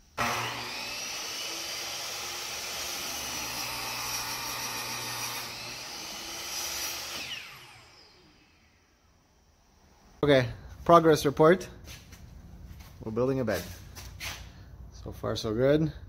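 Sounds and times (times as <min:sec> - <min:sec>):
miter saw cutting wood: 0:00.1 - 0:09.1.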